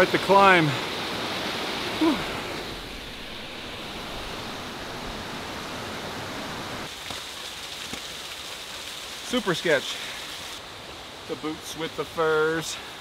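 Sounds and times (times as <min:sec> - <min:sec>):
running water rushing: 0:00.0 - 0:13.0
person speaking: 0:02.0 - 0:02.4.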